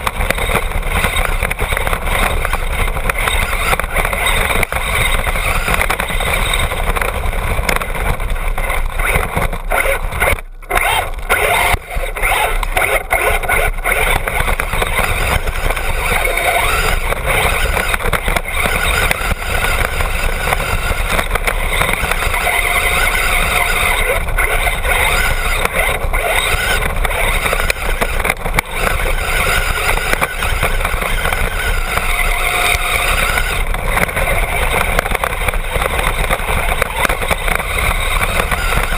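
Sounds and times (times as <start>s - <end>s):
rc car motor and tyres rattling: 0.0s - 38.9s.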